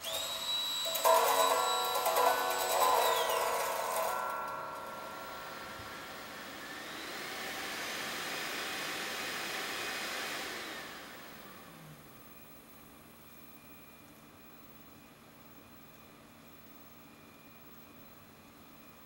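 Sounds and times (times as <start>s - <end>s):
appliance motor blowing air: 0.0s - 1.2s, 5.8s - 11.9s.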